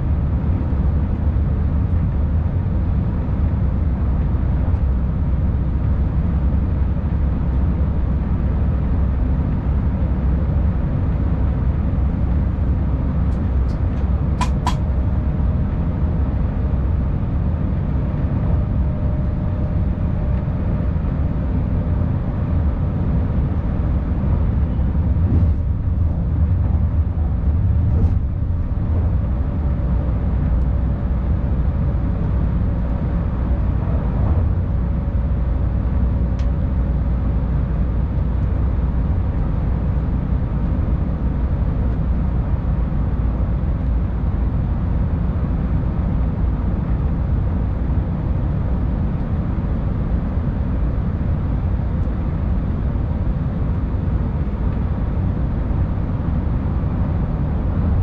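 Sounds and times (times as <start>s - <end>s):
train wheels rumbling on track: 10.1s - 45.8s.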